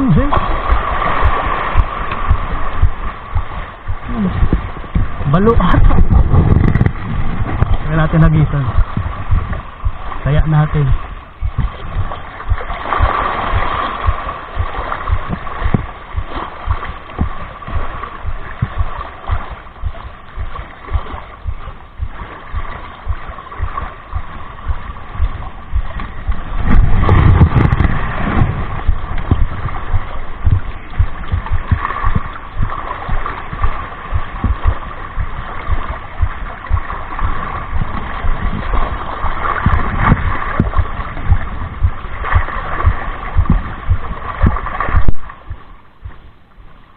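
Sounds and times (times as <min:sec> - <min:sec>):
water lapping against rocks: 0:00.0 - 0:46.2
wind buffeting microphone: 0:00.0 - 0:46.3.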